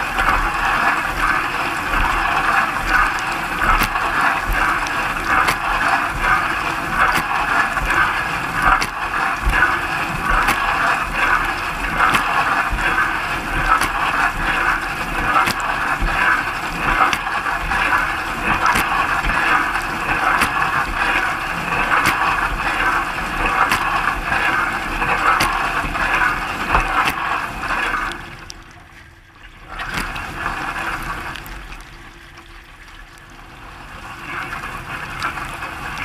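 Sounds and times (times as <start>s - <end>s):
dishwasher water jets spattering: 0.0s - 28.6s, 29.5s - 31.9s.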